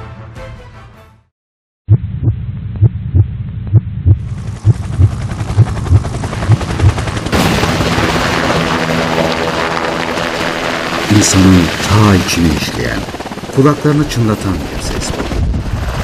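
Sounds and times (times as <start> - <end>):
helicopter rotor thumping: 3.7 - 16.0.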